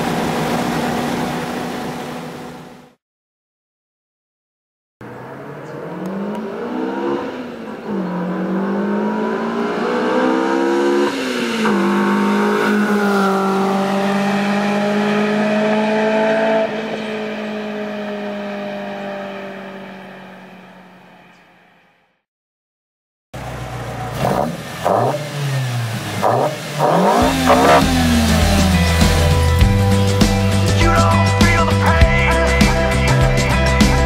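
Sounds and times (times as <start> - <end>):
car engine revving through gears: 5.0 - 21.2, 23.4 - 30.9.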